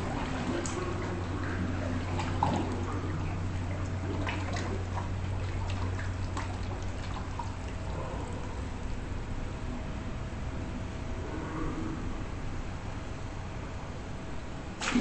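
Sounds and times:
small drips and splashes: 0.0s - 8.4s
water trickling and dripping: 0.0s - 8.4s
steady low hum: 0.0s - 15.0s.

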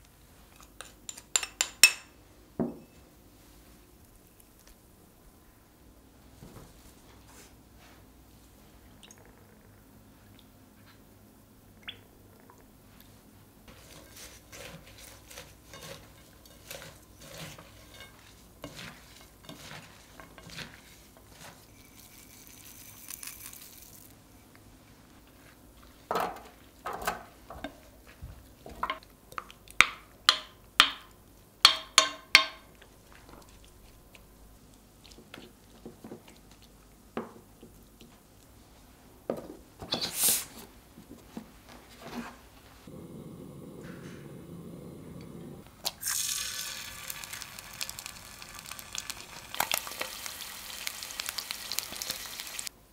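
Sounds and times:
utensils tapping bowl: 0.6s - 2.9s, 28.7s - 32.8s
wet stirring of salad: 12.9s - 24.2s.

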